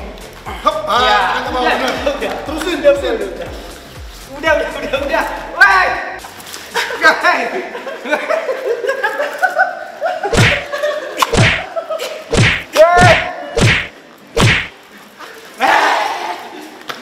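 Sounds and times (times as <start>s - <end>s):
heavy slapping thuds on a mat: 10.4s - 10.7s, 11.3s - 11.6s, 12.4s - 14.7s.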